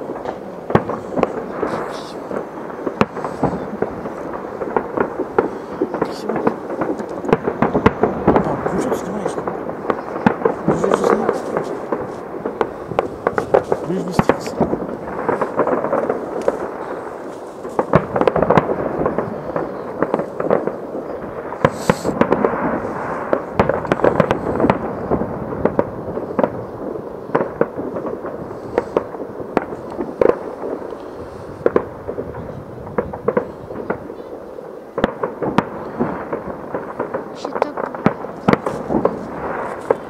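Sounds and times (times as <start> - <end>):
distant fireworks bangs and crackle: 0.0 - 40.0
sharp firework bangs: 0.0 - 40.0
high hiss: 21.7 - 22.2.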